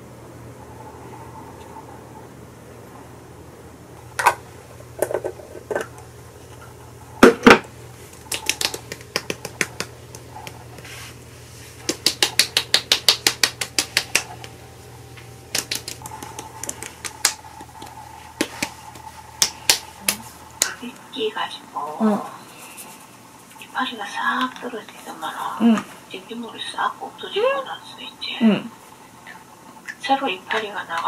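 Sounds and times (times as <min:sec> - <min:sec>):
hands patting face: 0:08.0 - 0:14.6, 0:15.2 - 0:20.8.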